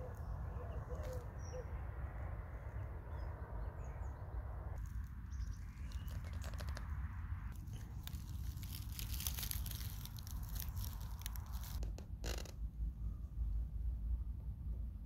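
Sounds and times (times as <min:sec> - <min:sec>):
faint bird chirps: 0:00.0 - 0:01.9
low rumble: 0:00.0 - 0:15.0
soft crackling clicks: 0:05.8 - 0:06.9.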